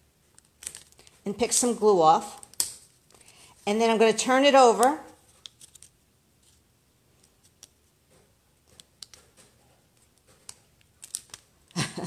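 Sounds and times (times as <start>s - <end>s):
paper ticks and rustles: 5.3s - 6.6s.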